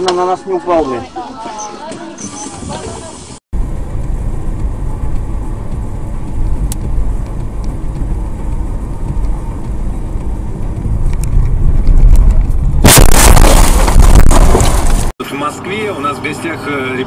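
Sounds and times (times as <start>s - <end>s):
car engine and tyres rumbling: 3.6s - 17.0s.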